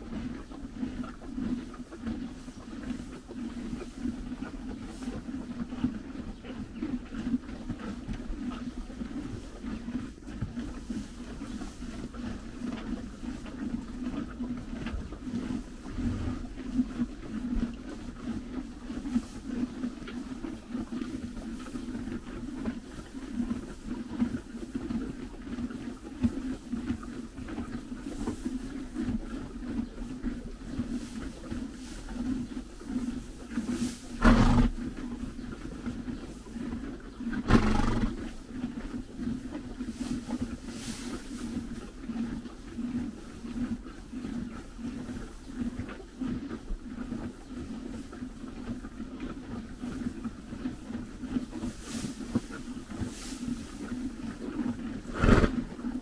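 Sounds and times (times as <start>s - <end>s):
horses chewing hay: 0.0s - 56.0s
hay rustling: 53.1s - 53.7s.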